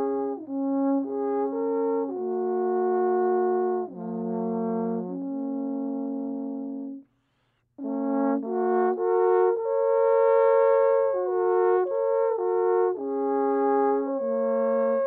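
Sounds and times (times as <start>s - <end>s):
alphorns playing a slow melody: 7.8s - 15.0s.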